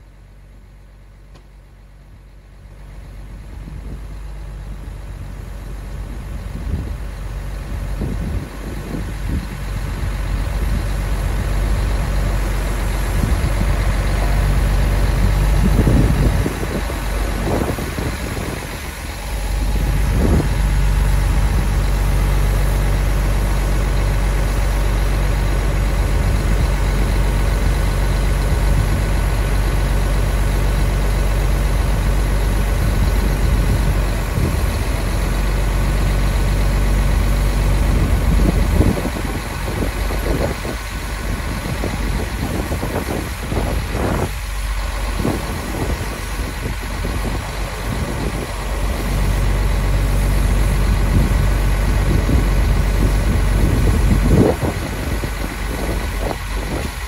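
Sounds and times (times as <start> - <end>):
diesel truck engine running: 0.0 - 57.0.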